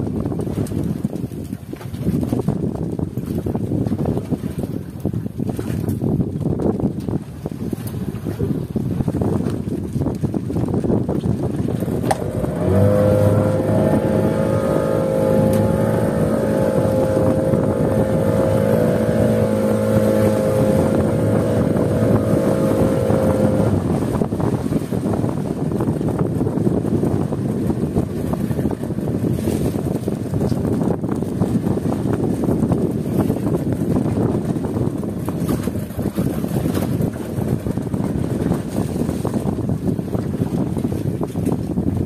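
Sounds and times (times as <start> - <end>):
boat engine humming: 0.0 - 42.0
wind rumbling on microphone: 0.0 - 42.0.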